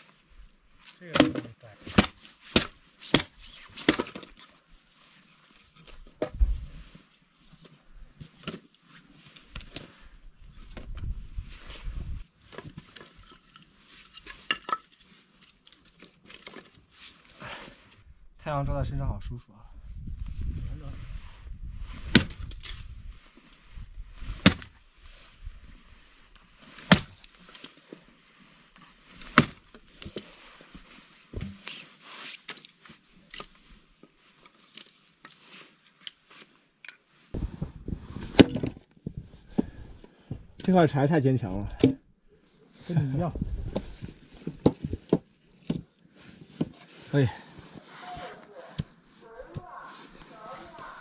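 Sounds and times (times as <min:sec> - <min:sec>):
hatchet chopping wood: 0:01.9 - 0:04.1, 0:22.1 - 0:22.4, 0:24.4 - 0:24.7, 0:26.8 - 0:27.2.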